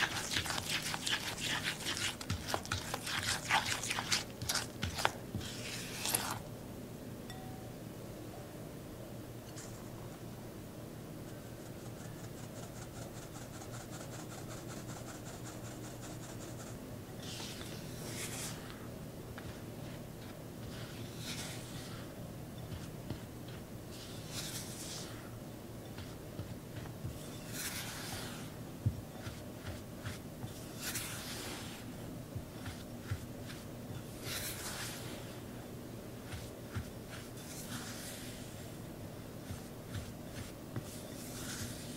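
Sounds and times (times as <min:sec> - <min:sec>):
flour rasping through metal sieve: 0:00.0 - 0:06.4, 0:17.2 - 0:18.8, 0:19.4 - 0:35.6, 0:36.2 - 0:38.8, 0:39.4 - 0:41.9
spatula scraping dough: 0:00.0 - 0:06.5, 0:11.8 - 0:35.5, 0:36.2 - 0:38.8, 0:39.4 - 0:41.9.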